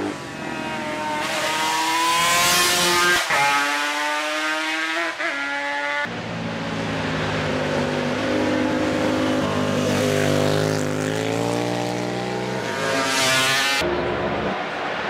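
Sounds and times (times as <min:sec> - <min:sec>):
racing motorcycle engine revving: 0:00.0 - 0:06.1, 0:07.1 - 0:14.6.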